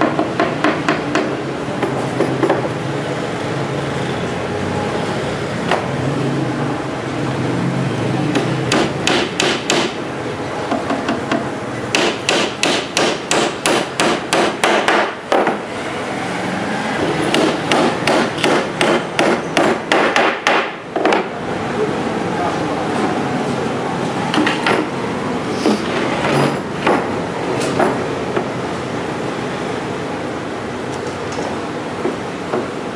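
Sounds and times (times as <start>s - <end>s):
hammer driving nails into board: 8.3s - 10.0s, 10.8s - 15.6s, 17.3s - 21.3s.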